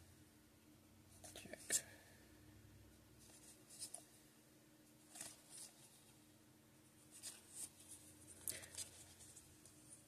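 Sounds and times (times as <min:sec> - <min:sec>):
cards rustling in hands: 0:05.0 - 0:06.2, 0:07.1 - 0:10.0.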